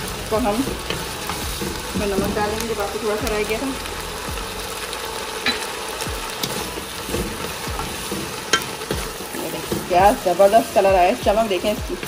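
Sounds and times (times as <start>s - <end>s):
vegetables sizzling in a wok: 0.0s - 12.0s
wooden spatula scraping a pan: 6.4s - 11.8s.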